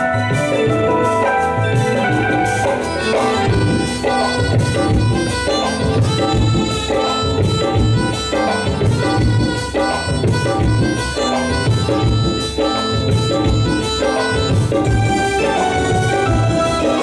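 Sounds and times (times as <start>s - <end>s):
sustained melody line: 0.0s - 17.0s
tabla and congas beat: 0.0s - 17.0s.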